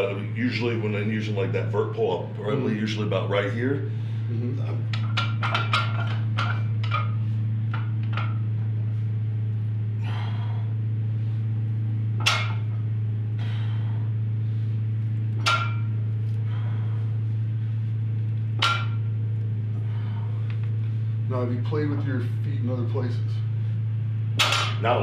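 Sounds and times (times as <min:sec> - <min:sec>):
steady low hum: 0:00.0 - 0:25.0
barbell plates clinking and knocking: 0:04.9 - 0:08.4, 0:12.2 - 0:12.7, 0:15.4 - 0:15.9, 0:18.6 - 0:19.1.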